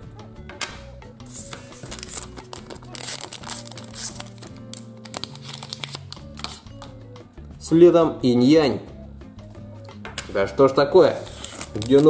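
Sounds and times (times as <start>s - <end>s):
background music: 0.0s - 12.0s
packet crinkling and tearing: 1.3s - 6.6s, 11.2s - 12.0s.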